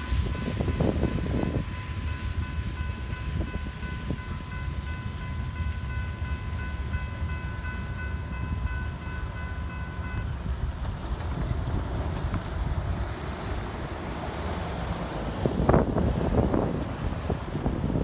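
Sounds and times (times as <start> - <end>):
railroad crossing bell ringing: 0.0 - 10.5
low wind rumble: 0.0 - 18.0.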